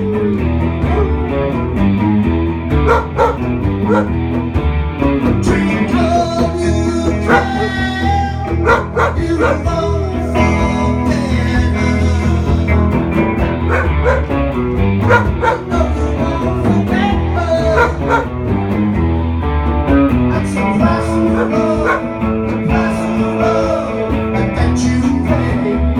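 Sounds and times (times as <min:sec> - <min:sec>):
live rock band playing: 0:00.0 - 0:25.9
dog howling: 0:00.8 - 0:01.5, 0:02.9 - 0:04.1, 0:07.2 - 0:07.9, 0:08.5 - 0:09.8, 0:13.6 - 0:14.3, 0:15.0 - 0:15.8, 0:17.7 - 0:18.3, 0:21.2 - 0:22.1.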